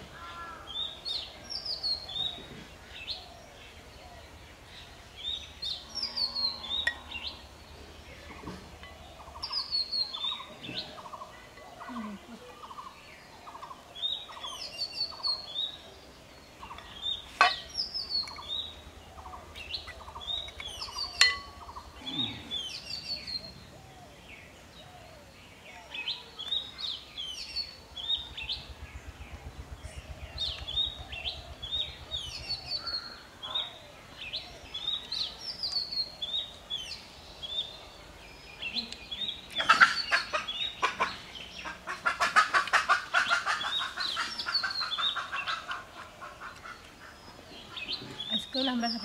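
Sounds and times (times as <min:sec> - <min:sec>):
small birds chirping: 0:00.0 - 0:49.0
fast rattling bird call: 0:39.6 - 0:47.2.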